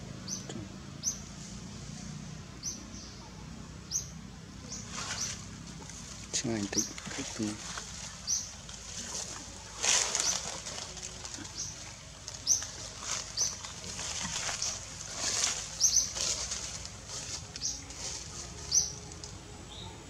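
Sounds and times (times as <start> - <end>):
small birds chirping: 0.0 - 20.0.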